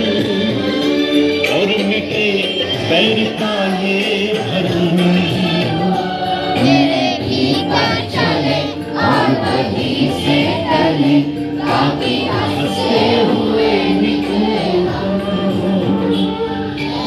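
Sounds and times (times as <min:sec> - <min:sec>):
children singing in chorus: 0:06.3 - 0:15.8, 0:16.5 - 0:17.0.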